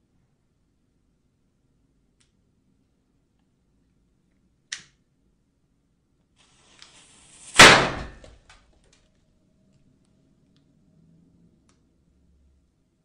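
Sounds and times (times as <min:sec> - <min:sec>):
building hiss: 0:06.4 - 0:08.0
loud bang: 0:07.3 - 0:08.4.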